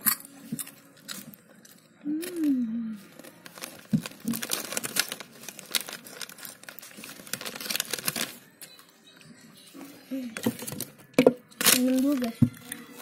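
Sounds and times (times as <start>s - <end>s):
plastic snack packet crinkling: 1.0s - 8.6s, 10.4s - 13.0s.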